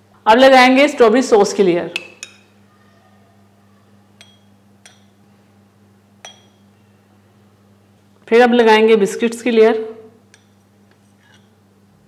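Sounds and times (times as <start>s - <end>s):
metal spoon clinking glass: 4.2s - 5.2s, 6.2s - 6.6s.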